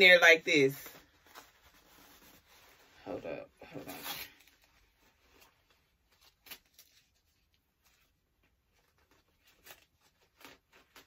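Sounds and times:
fabric rustling: 0.6s - 11.0s.

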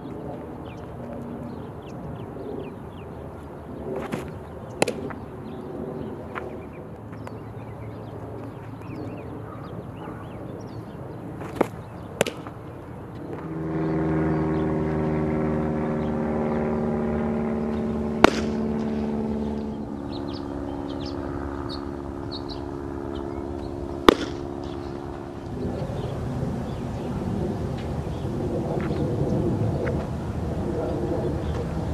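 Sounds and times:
engine humming: 0.0s - 31.9s
baseball smacking into mitt: 4.0s - 5.1s, 11.4s - 12.6s, 18.2s - 19.2s, 24.0s - 24.8s.

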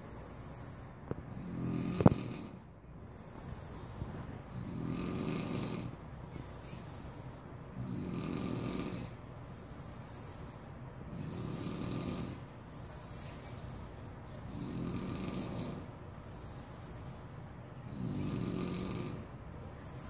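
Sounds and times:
breathy exhale hiss: 0.0s - 20.0s
man snoring: 1.3s - 3.2s, 4.5s - 6.0s, 7.7s - 12.4s, 14.4s - 19.4s.

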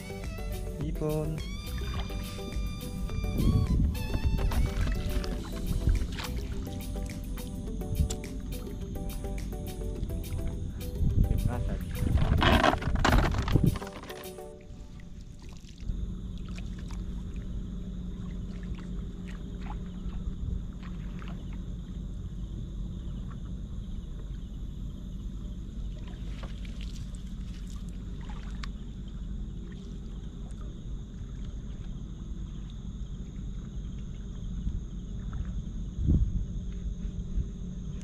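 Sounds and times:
low rumble: 0.8s - 13.8s
seawater sloshing around legs: 4.0s - 7.6s, 11.8s - 22.0s, 25.8s - 32.6s
small splashes: 4.5s - 7.5s, 11.9s - 22.0s, 25.9s - 32.0s.

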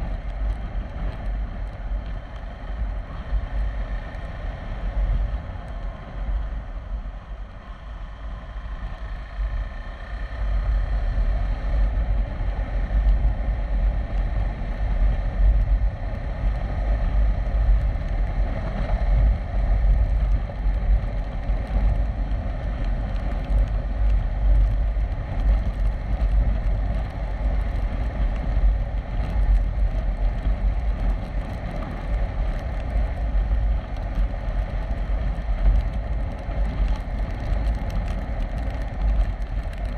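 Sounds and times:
motorcycle engine running: 0.0s - 39.9s
wind buffeting microphone: 0.0s - 39.9s.

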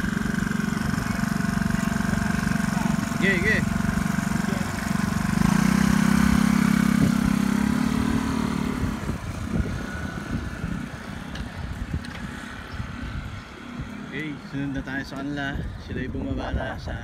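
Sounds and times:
motor scooter engine: 0.0s - 16.8s.

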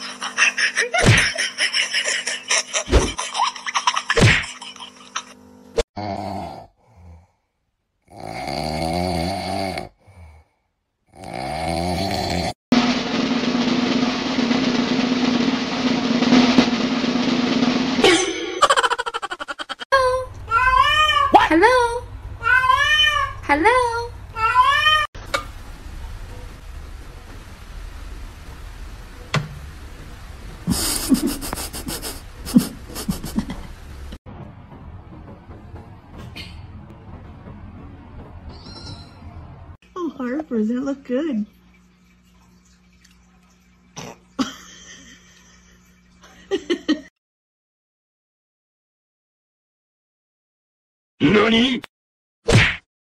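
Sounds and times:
dog snoring: 8.0s - 10.0s, 11.1s - 12.6s.

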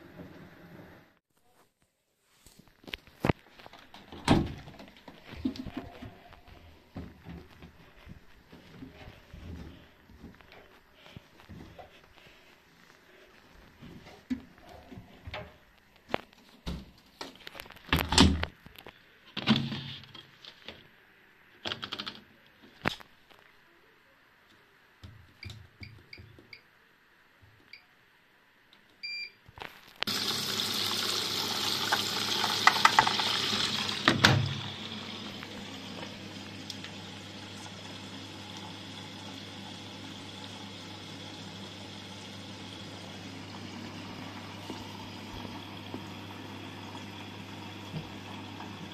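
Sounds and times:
water rushing into machine: 30.1s - 48.9s.

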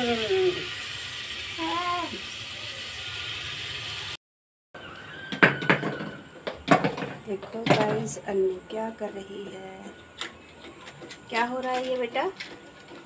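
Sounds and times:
paste sizzling in a pot: 0.0s - 4.2s.

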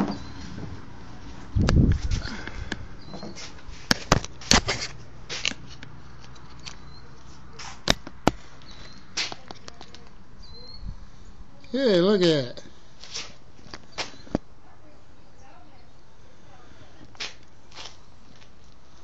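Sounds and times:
camera handling rumble: 1.6s - 3.2s, 3.8s - 7.0s.

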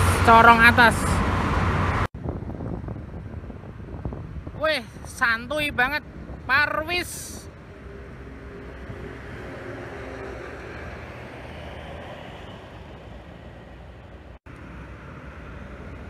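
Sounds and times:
highway traffic passing: 0.0s - 16.0s.

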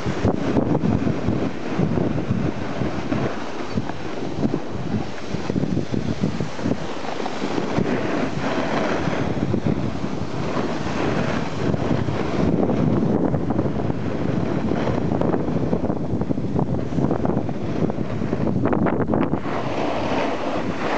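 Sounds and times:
sliding over packed snow: 0.0s - 18.5s, 19.2s - 20.9s
wind buffeting microphone: 0.0s - 20.9s.

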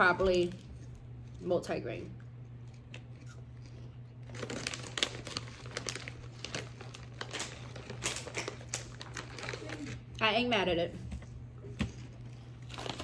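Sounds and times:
foil wrapper crackling: 4.2s - 10.1s, 12.6s - 13.0s.

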